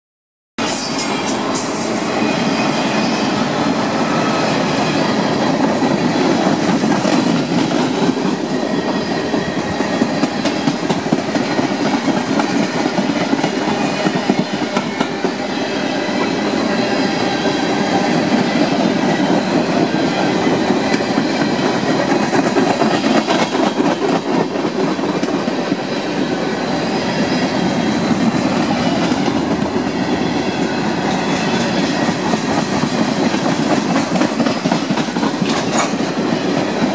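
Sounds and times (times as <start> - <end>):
freight train wheels rumbling: 0.6 - 36.9
wheels clicking over rail joints: 32.0 - 36.9.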